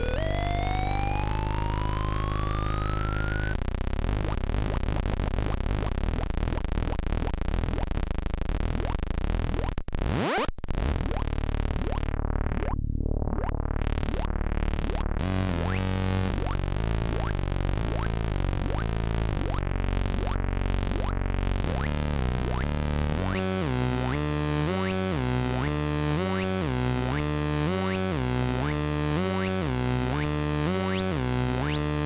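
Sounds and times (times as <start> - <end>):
rising synthesizer pitch sweep: 0.0 - 3.6
pulsing buzzy synthesizer tone: 0.0 - 32.0.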